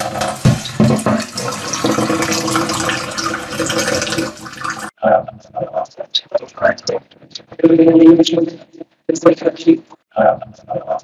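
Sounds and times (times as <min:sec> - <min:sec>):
water running from tap: 0:00.0 - 0:04.9.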